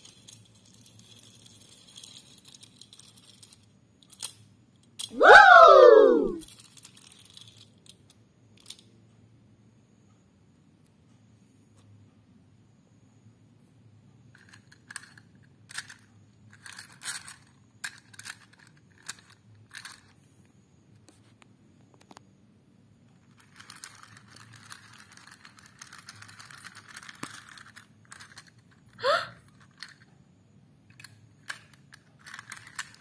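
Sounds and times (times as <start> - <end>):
toy trains clicking and knocking: 0.0 - 5.5, 6.4 - 9.2, 14.1 - 20.3, 23.0 - 33.0
toy wheels rattling on track: 0.0 - 5.6, 6.4 - 8.8, 14.2 - 20.2, 23.1 - 30.1, 30.9 - 33.0.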